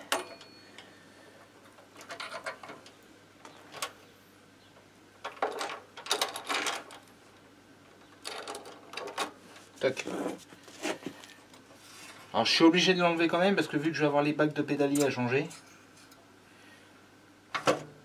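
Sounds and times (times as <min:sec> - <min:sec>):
metal parts clinking and rattling: 0:01.7 - 0:02.9, 0:05.2 - 0:07.0, 0:08.2 - 0:09.3.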